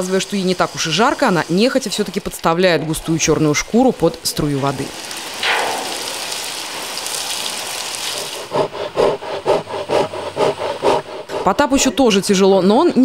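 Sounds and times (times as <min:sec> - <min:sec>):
water from hose spraying: 0:00.0 - 0:11.3
rhythmic rasping: 0:08.1 - 0:12.3.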